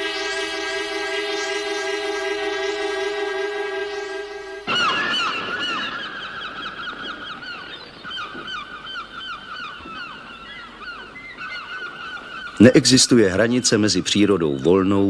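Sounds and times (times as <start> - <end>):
cormorants calling: 4.6 - 15.0.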